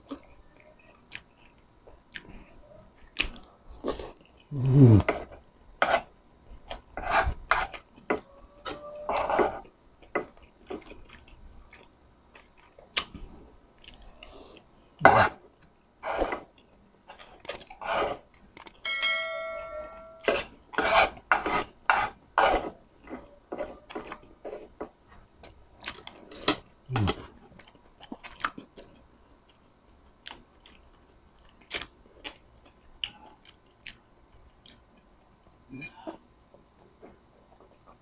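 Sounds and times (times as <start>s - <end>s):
brief metallic ring: 18.8s - 20.2s.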